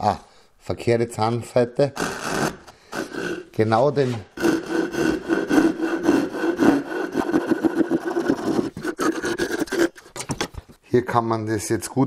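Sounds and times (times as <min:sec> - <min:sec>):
pull saw cutting wood: 0:01.9 - 0:10.4.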